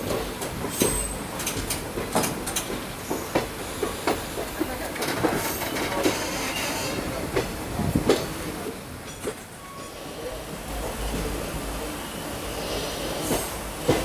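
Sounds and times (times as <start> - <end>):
wheels clacking over rail joints: 0.0 - 10.0
train wheels rumbling on track: 0.0 - 14.0.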